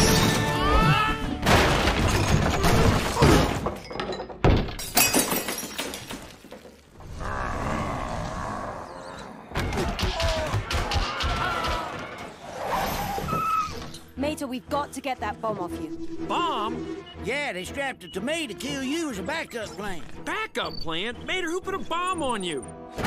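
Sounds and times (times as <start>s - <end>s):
music: 0.0s - 2.0s, 13.2s - 23.0s
crashes and breaking: 1.2s - 7.0s.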